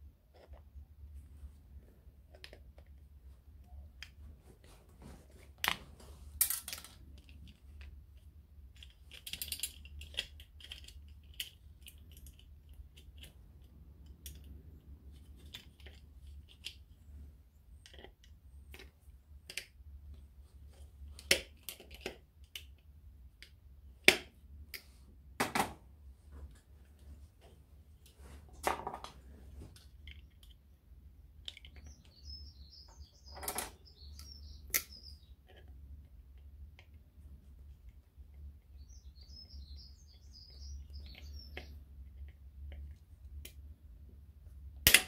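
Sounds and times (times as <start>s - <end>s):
metal parts clicking and knocking: 6.4s - 7.9s, 8.7s - 14.5s.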